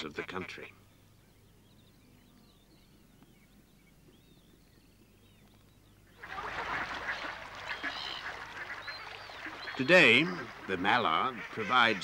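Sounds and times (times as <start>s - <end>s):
small birds calling: 0.0s - 12.0s
ducks quacking: 6.2s - 12.0s.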